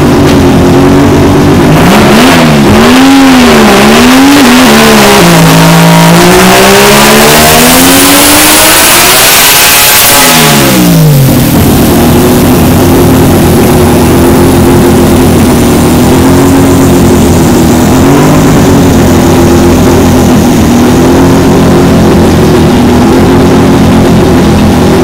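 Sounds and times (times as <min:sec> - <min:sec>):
high whine falling in pitch: 0:00.0 - 0:25.0
rotary engine idling: 0:10.8 - 0:25.0.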